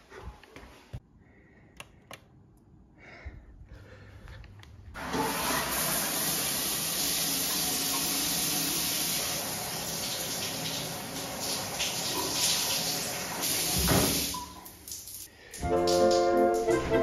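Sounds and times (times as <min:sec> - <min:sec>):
shower water rushing: 0:05.0 - 0:17.0.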